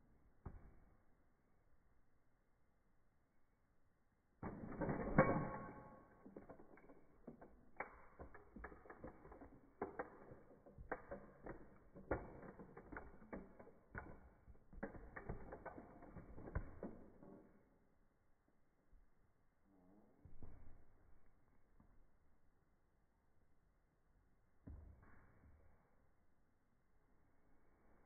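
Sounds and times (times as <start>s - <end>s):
plastic creaking and cracking: 6.0s - 17.5s.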